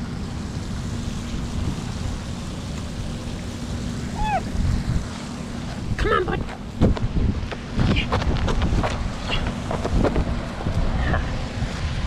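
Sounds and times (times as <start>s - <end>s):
fountain splashing: 0.0s - 8.1s
wind buffeting microphone: 0.8s - 5.2s, 5.8s - 12.0s.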